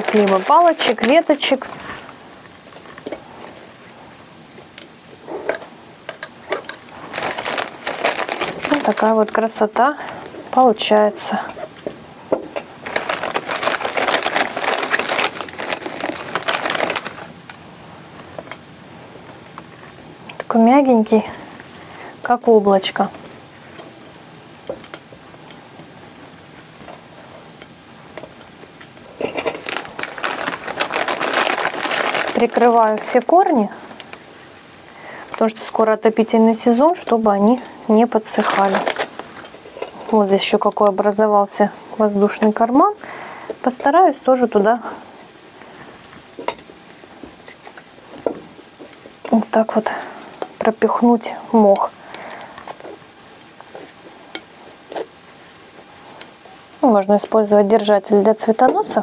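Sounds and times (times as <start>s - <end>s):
plastic bag crinkling: 0.0s - 3.2s, 6.6s - 10.7s, 12.6s - 17.6s, 29.1s - 34.0s, 37.0s - 40.4s
moss rustling: 6.9s - 9.6s, 12.8s - 17.4s, 29.6s - 33.3s
hands handling glass bowl: 29.2s - 32.7s.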